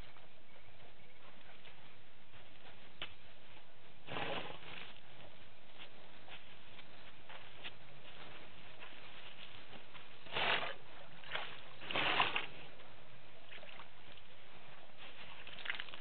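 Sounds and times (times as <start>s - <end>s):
water splashes: 15.4s - 16.0s.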